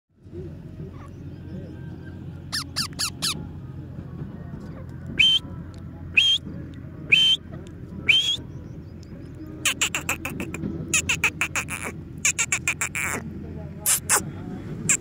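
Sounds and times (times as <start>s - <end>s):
parakeet chirping and squawking: 2.5s - 3.4s, 9.6s - 13.2s, 13.9s - 14.2s.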